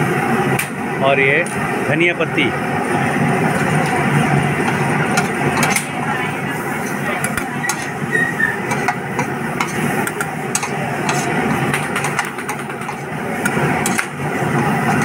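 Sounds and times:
steady low hum: 0.0s - 15.0s
steel spoons scraping griddle: 6.7s - 15.0s.

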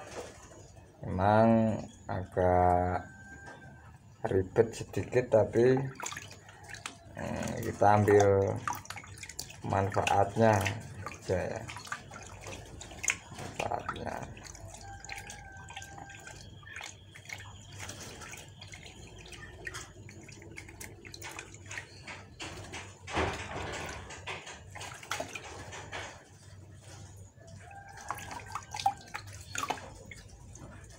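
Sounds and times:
water splashing in basin: 4.3s - 30.9s.

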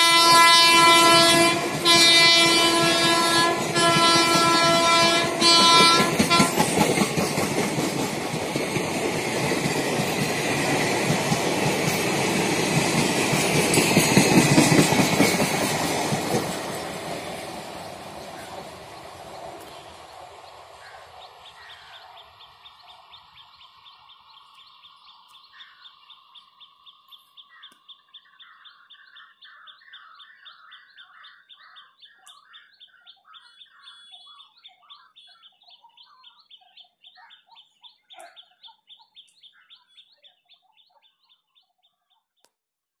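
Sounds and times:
train rumble: 0.0s - 26.3s
birds chirping: 0.0s - 42.4s
birds warbling: 17.8s - 41.5s.

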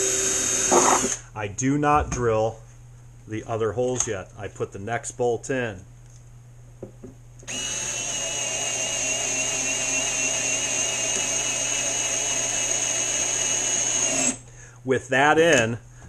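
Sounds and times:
electric screwdriver motor whine: 0.0s - 1.2s, 7.5s - 14.4s.

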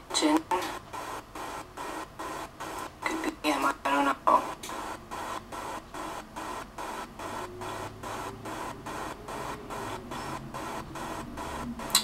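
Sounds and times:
rhythmic pulsing hiss: 0.0s - 12.0s.

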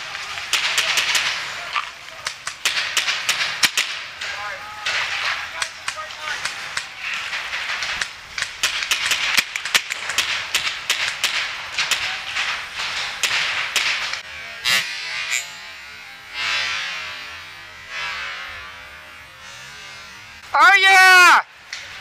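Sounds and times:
paintball markers firing: 0.0s - 14.2s.

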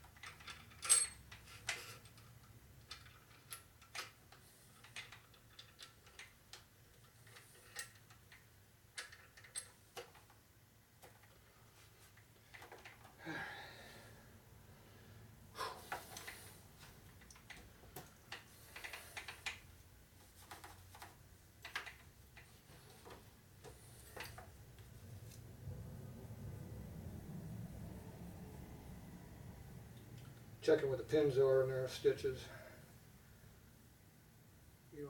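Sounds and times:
hands handling metal parts: 0.0s - 10.4s, 15.6s - 25.4s.

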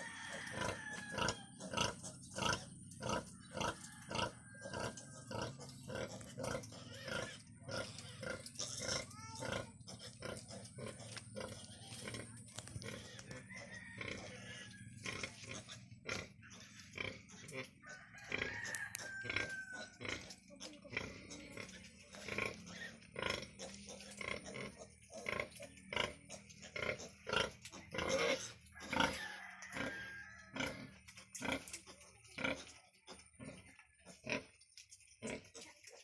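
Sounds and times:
piglets squeaking: 0.0s - 36.0s
pig grunts: 0.6s - 18.5s, 19.3s - 29.2s.

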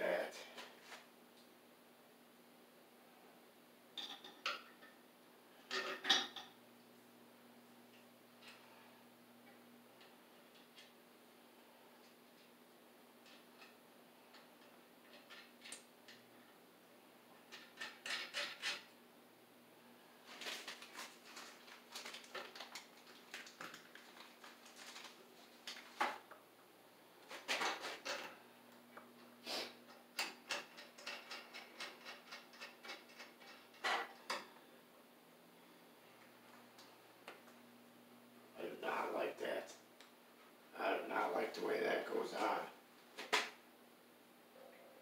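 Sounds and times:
metallic clinks and scrapes of tools: 30.2s - 34.4s.

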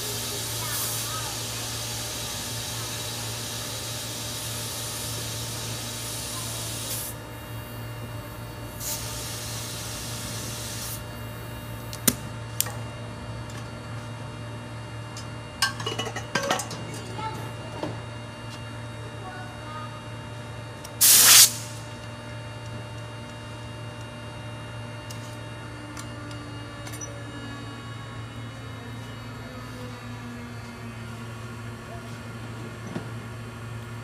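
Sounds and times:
compressed air hissing into tyre: 8.8s - 11.0s, 21.0s - 21.8s.

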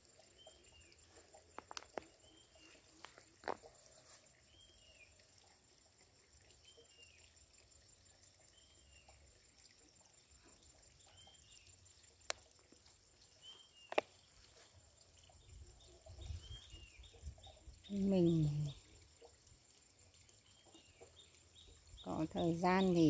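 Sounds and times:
bird chirping: 13.3s - 18.8s.

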